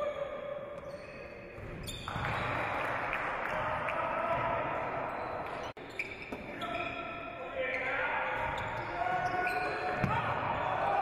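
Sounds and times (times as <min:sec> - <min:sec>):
ball bouncing on wooden court: 0:09.9 - 0:10.3.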